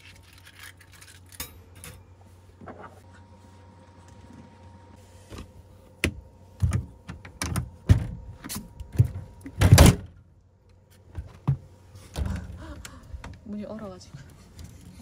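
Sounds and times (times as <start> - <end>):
knocks and rattling thuds on door: 8.9 - 10.1.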